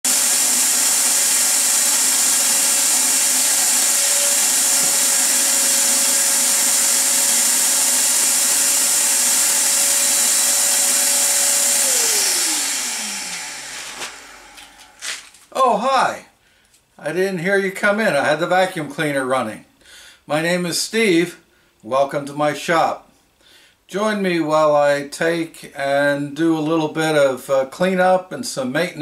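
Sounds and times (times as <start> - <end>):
vacuum cleaner running: 0.0 - 15.4.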